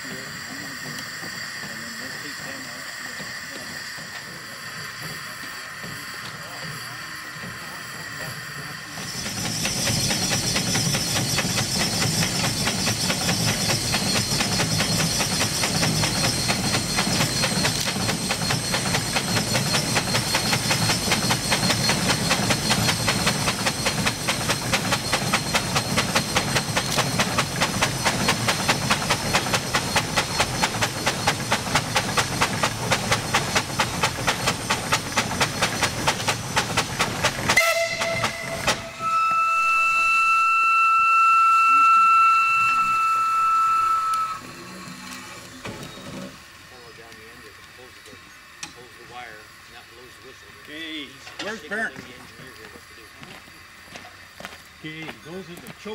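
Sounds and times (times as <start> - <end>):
steady hiss of steam: 0.0 - 37.6, 44.5 - 55.9
steam engine exhaust chuffing: 0.0 - 40.1
steam whistle: 37.5 - 44.8.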